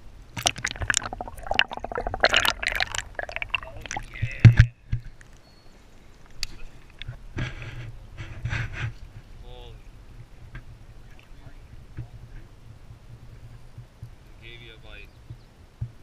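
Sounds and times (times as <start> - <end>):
river water sloshing and splashing: 0.4 - 4.3.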